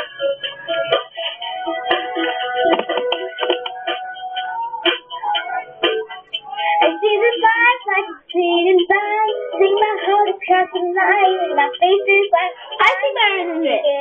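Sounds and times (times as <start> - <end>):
pop song music: 0.0 - 14.0
girl singing along: 4.1 - 14.0.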